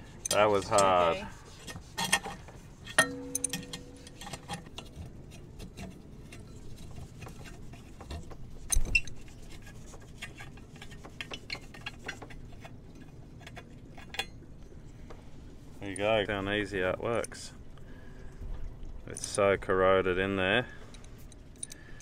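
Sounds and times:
metallic clicks and scrapes of wrench: 0:00.2 - 0:01.0, 0:07.3 - 0:14.4, 0:20.9 - 0:22.0
metal clink ringing: 0:03.0 - 0:04.2.

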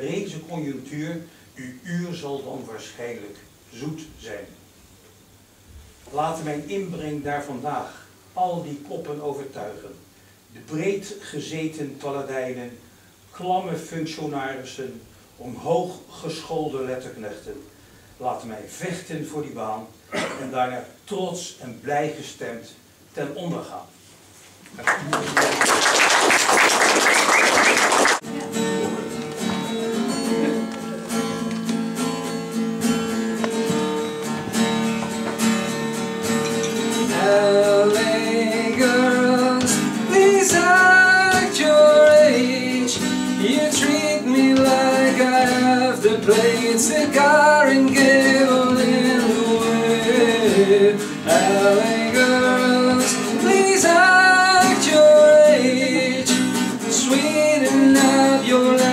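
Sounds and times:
applause: 0:24.8 - 0:28.3
acoustic guitar chords: 0:27.3 - 0:58.9
man singing: 0:37.0 - 0:58.9.

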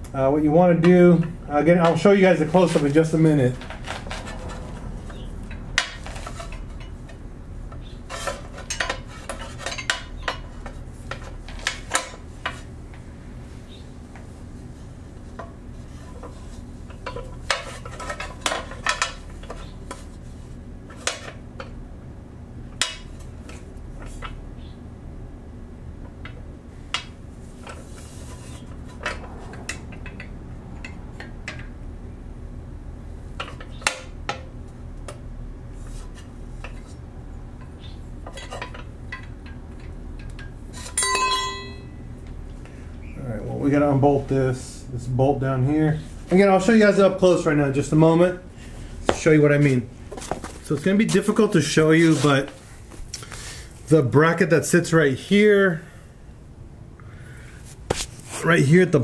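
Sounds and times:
metal part clattering on concrete: 0:38.2 - 0:42.0
metal tools clinking on steel: 0:38.3 - 0:42.0.

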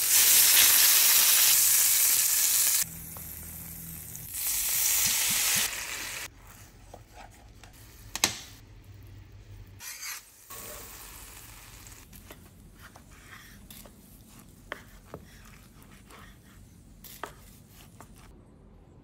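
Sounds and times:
sauce sizzling in a pan: 0:00.0 - 0:02.8
knife slicing on cutting board: 0:12.8 - 0:18.3.

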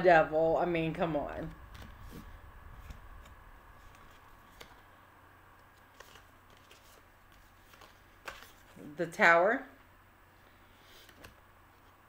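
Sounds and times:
low hum: 0:00.0 - 0:08.3.

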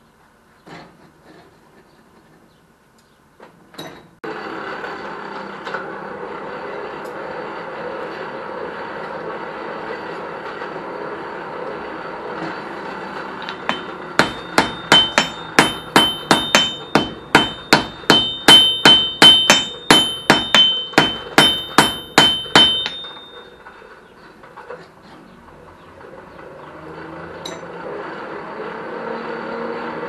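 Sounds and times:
hammer striking steel on anvil: 0:13.4 - 0:23.6, 0:27.4 - 0:27.8.

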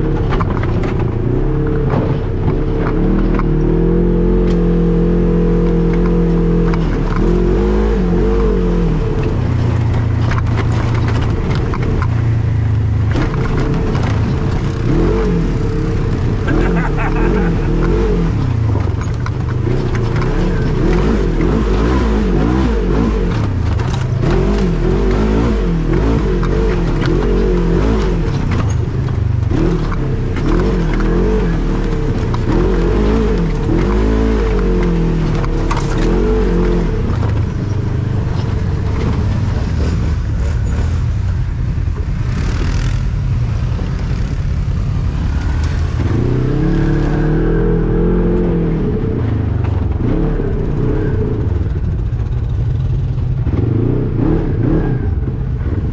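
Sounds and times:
vehicle knocks and rattles: 0:00.0 - 0:03.8, 0:05.9 - 0:42.8
off-road engine revving: 0:00.0 - 0:55.9.

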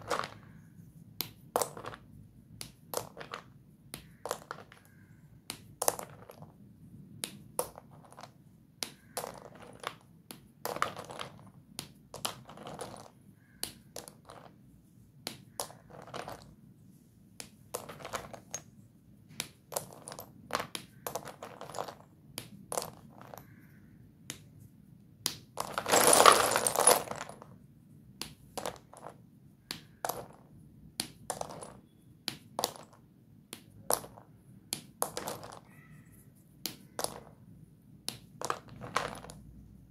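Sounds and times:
chalk sticks clicking and snapping: 0:01.2 - 0:06.2, 0:07.1 - 0:10.5, 0:13.4 - 0:14.5, 0:24.2 - 0:24.6, 0:29.6 - 0:30.2, 0:33.5 - 0:37.2.

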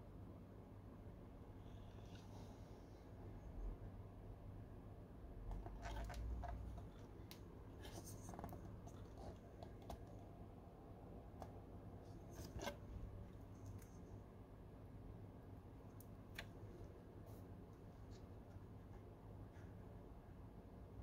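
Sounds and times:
low steady hum: 0:00.0 - 0:21.0
light clicks and scrapes: 0:05.5 - 0:10.3, 0:11.4 - 0:14.2.

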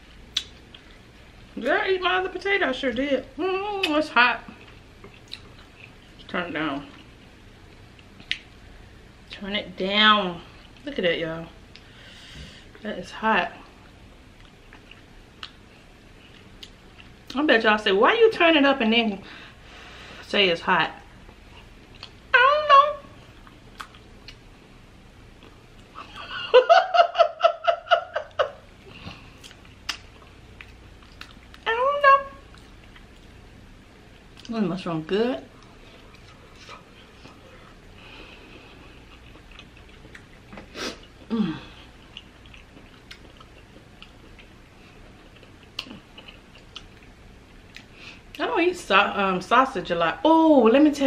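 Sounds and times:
wet mouth clicks: 0:00.3 - 0:00.6
person chewing food: 0:04.5 - 0:06.3, 0:13.8 - 0:17.4, 0:21.3 - 0:22.3, 0:23.2 - 0:24.5, 0:25.3 - 0:26.0, 0:28.2 - 0:31.6, 0:32.4 - 0:34.5, 0:35.5 - 0:48.4
woman laughing: 0:26.0 - 0:28.6.

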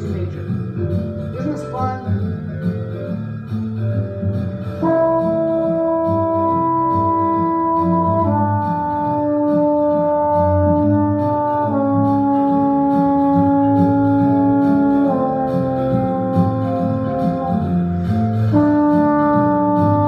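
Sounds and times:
backing track: 0:00.0 - 0:20.0
trombone long held notes: 0:04.8 - 0:20.0.

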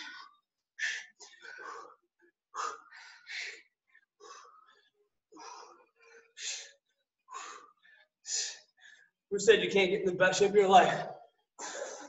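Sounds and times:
person breathing hard: 0:00.0 - 0:09.2.

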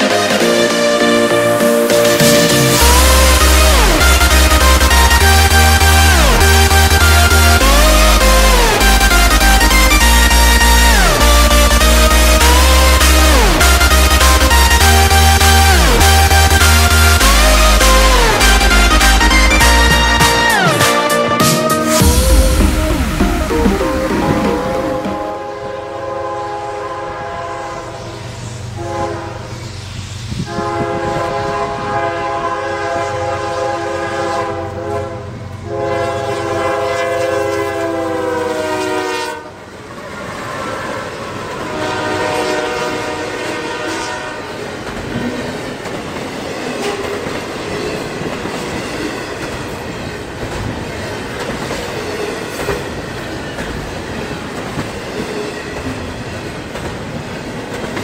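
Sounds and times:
diesel engine drone: 0:00.8 - 0:20.7, 0:22.0 - 0:25.5
train air horn blasts: 0:02.1 - 0:29.7, 0:30.3 - 0:45.5
train wheels rumbling and clattering: 0:44.6 - 0:58.0.

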